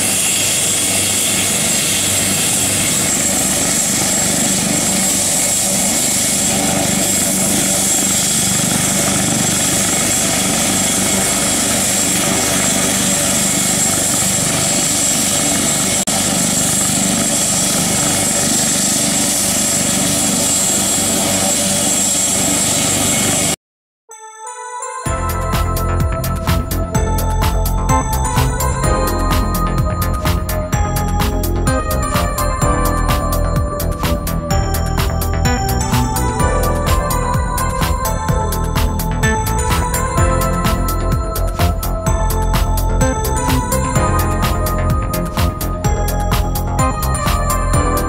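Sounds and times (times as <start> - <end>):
helicopter engines and rotors: 0.0 - 23.6, 25.2 - 48.0.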